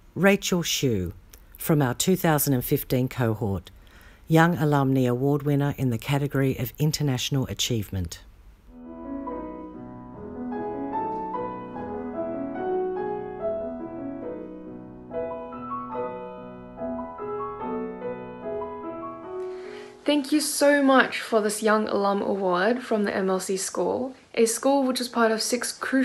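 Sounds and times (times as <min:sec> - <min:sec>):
classical piano music: 0:08.7 - 0:20.3.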